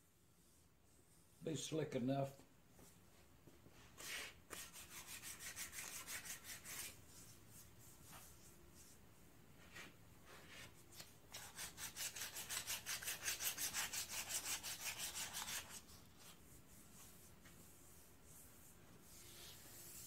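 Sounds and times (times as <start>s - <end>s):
hand sanding strokes: 3.9s - 9.0s, 11.3s - 20.0s.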